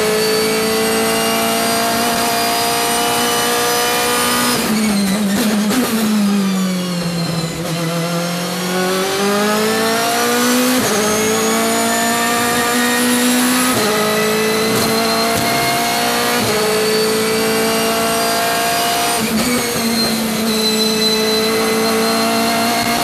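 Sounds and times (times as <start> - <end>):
race car engine at full throttle: 0.0 - 23.0.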